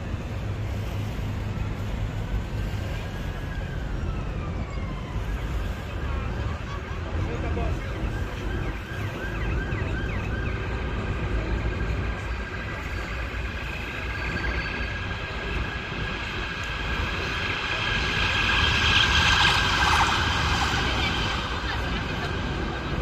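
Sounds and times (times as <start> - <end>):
mechanical whine: 7.8 - 23.0.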